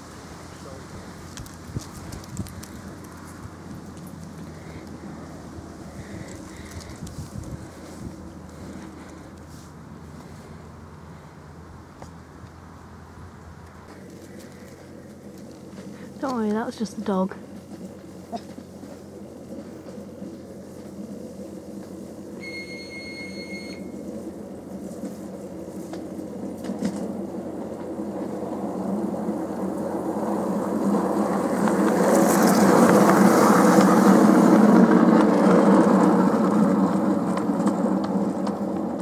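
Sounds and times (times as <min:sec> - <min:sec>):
train wheels rumbling on rail: 0:00.0 - 0:11.4, 0:13.9 - 0:39.0
high train whistle: 0:22.4 - 0:24.0.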